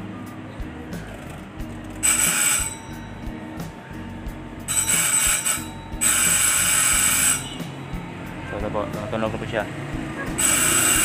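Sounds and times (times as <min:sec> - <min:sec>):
fire alarm bell ringing: 0:02.0 - 0:03.3, 0:04.7 - 0:07.9, 0:10.4 - 0:11.0.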